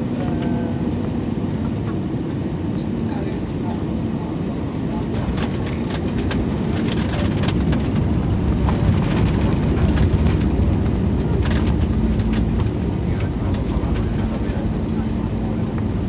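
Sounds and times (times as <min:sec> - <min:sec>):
wheels and engines rumbling: 0:00.0 - 0:16.0.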